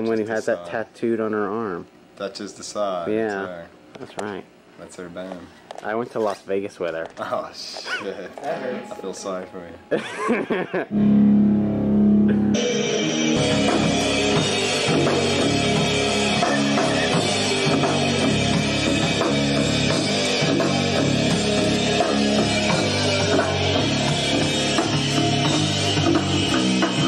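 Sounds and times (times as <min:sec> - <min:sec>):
bass guitar note: 0:10.9 - 0:27.0
rock band playing: 0:10.9 - 0:27.0.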